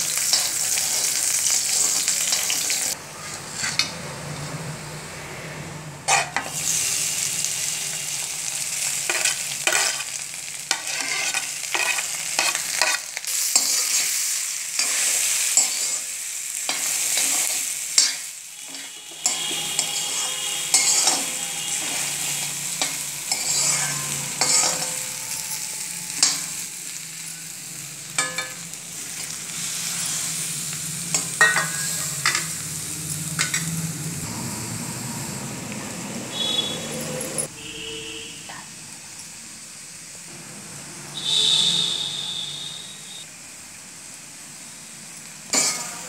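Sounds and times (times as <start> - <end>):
metal spoon scraping a pan: 0.0 - 4.0, 6.1 - 6.8, 9.0 - 26.8, 31.1 - 32.6, 45.5 - 46.0
hot oil sizzling: 0.0 - 5.1, 6.0 - 46.0.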